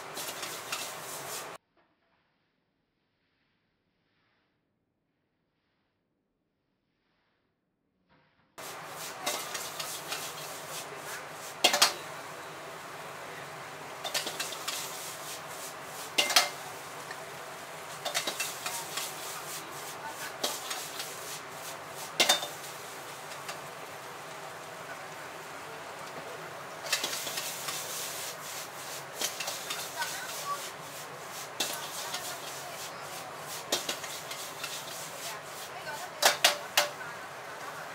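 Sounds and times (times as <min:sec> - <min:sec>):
food sizzling: 0:00.0 - 0:01.6, 0:08.6 - 0:37.9
gas flame hissing: 0:00.0 - 0:01.6, 0:08.6 - 0:37.9
metal ladle clanking against wok: 0:11.6 - 0:12.1, 0:16.2 - 0:16.6, 0:18.0 - 0:19.1, 0:22.2 - 0:22.6.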